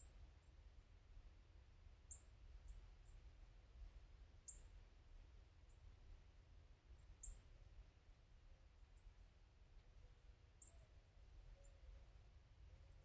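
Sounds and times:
high down-sweeping bird chirps: 10.6 - 12.1.

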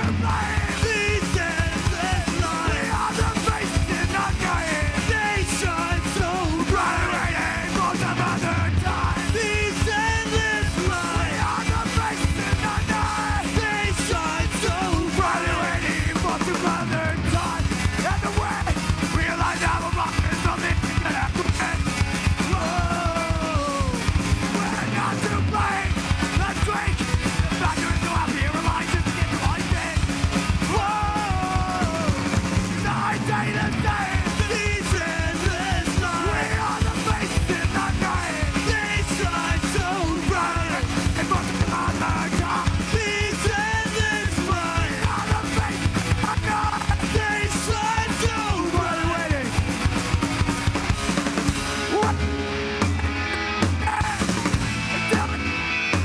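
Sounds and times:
distorted electric guitars and bass: 0.0 - 56.0
fast drumming: 0.0 - 56.0
vocalist yelling: 22.4 - 30.0, 30.6 - 49.5, 51.9 - 52.2, 53.8 - 55.4.

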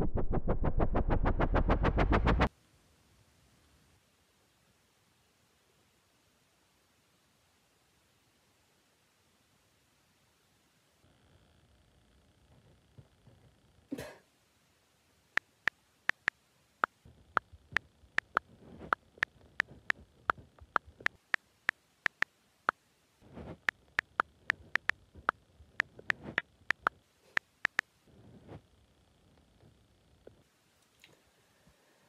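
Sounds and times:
phone keyboard clicks: 16.1 - 16.3, 18.2 - 19.0, 22.1 - 22.3, 23.6 - 25.0.

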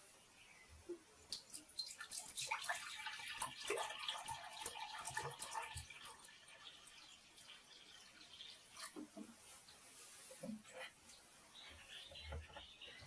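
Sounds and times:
water splashing into a jug: 1.3 - 9.4.

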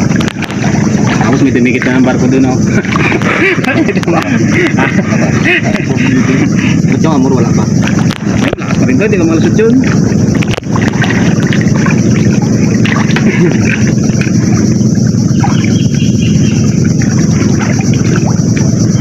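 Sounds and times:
small water splashes: 9.7 - 14.7, 16.8 - 18.8
floodwater rushing: 9.8 - 15.9, 16.6 - 19.0.

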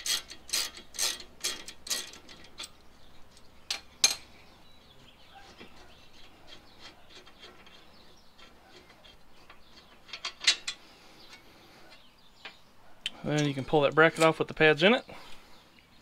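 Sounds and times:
faint handling noise: 5.3 - 15.9.

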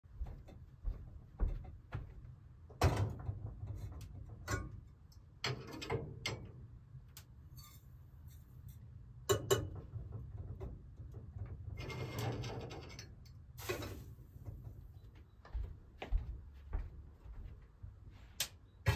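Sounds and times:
metal scraping on stove: 7.5 - 7.9, 11.8 - 14.1.

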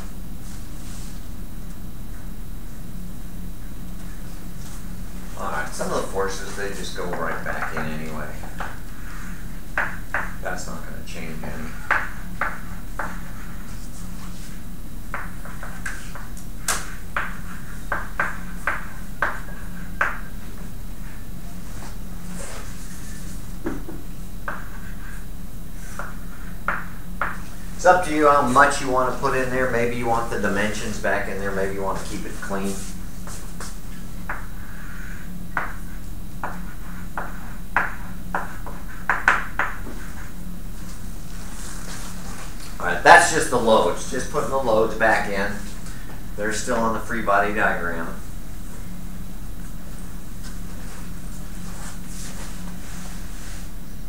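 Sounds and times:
steady low hum: 0.0 - 54.0
chalk tapping and scratching on blackboard: 5.9 - 10.4, 11.6 - 20.3, 24.4 - 25.2, 25.8 - 27.6, 31.9 - 42.5.

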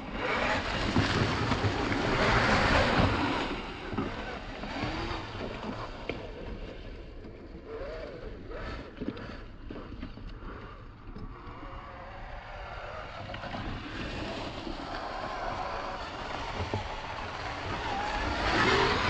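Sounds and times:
toy car electric motor whirring: 14.7 - 19.0.

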